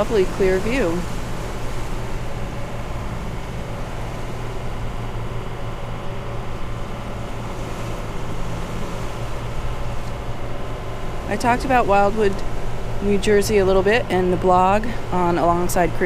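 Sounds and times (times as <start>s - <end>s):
boat engines humming: 0.0s - 16.0s
rush of wind and water: 0.0s - 16.0s.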